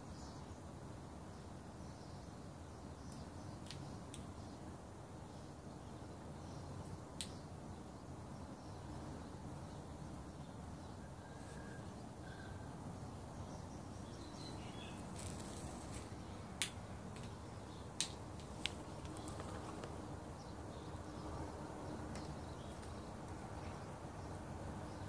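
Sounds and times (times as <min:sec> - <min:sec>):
outdoor background: 0:00.0 - 0:25.0.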